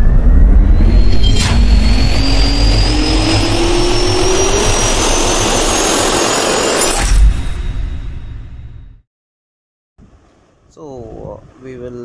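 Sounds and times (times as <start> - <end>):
jet turbine spooling up: 0.0 - 8.4
sharp hit: 0.0 - 9.0.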